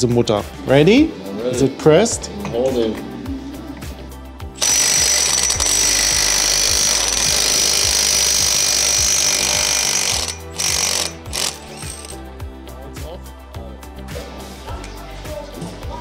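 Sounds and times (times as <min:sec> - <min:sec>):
impact wrench hammering: 0:04.6 - 0:12.2.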